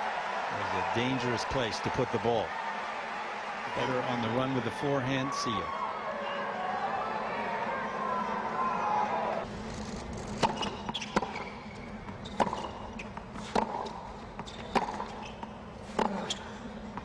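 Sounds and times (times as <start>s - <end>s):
tennis ball bouncing on court: 10.3s - 11.5s, 12.2s - 17.0s.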